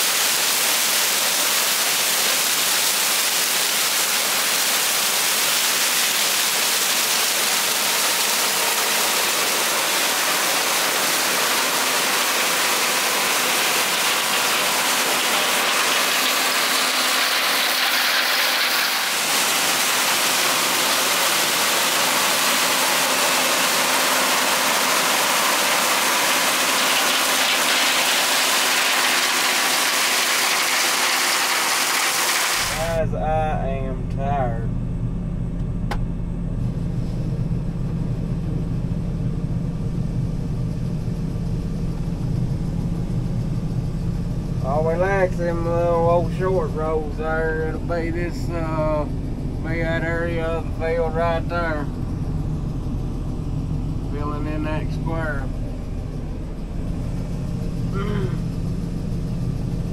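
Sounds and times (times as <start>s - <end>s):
combine harvester rushing noise: 1.0s - 34.7s, 40.1s - 59.9s
faint steady hum: 32.8s - 59.9s.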